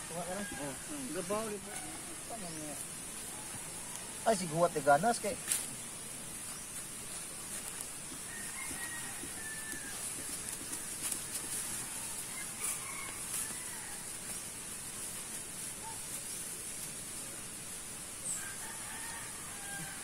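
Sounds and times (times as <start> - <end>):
steady high hiss: 0.0 - 20.0
rooster crowing faintly: 8.2 - 14.2, 18.3 - 20.0.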